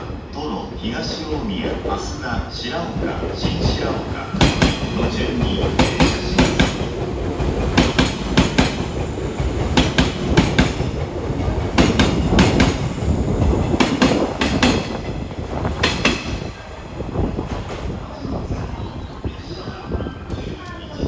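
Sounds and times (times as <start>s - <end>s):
train rumble: 0.0s - 21.0s
train wheels clattering over joints: 4.3s - 16.5s.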